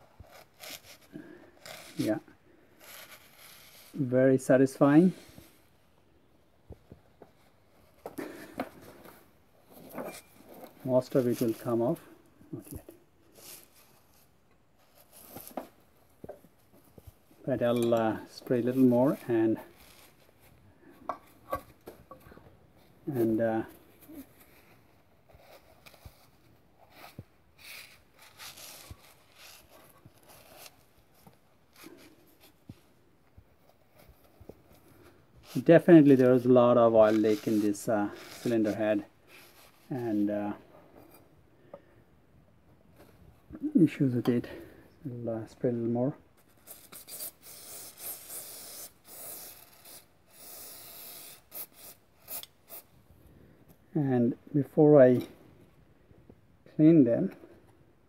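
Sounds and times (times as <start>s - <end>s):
paper towel rubbing metal: 2.8s - 4.1s, 26.9s - 32.6s, 35.4s - 40.3s.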